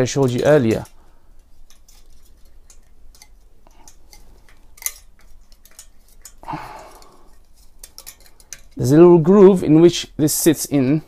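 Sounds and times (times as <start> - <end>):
scraping rustle: 0.0 - 6.4
small metal clicks and taps: 0.2 - 6.4, 7.3 - 8.8.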